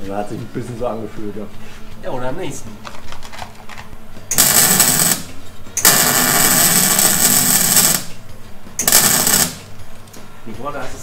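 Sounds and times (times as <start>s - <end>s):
arc welder crackling: 4.3s - 9.8s.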